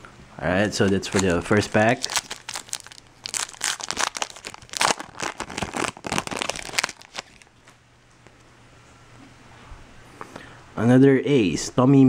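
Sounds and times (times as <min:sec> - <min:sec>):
foil wrapper crinkling and tearing: 0:00.8 - 0:07.5.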